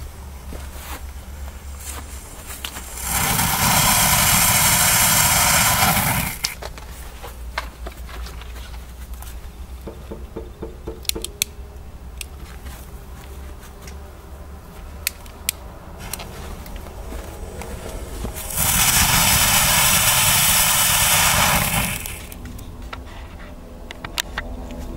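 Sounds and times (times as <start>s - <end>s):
firework fountain hissing: 1.5s - 6.6s, 18.0s - 22.5s
sharp clicks: 2.6s - 6.6s.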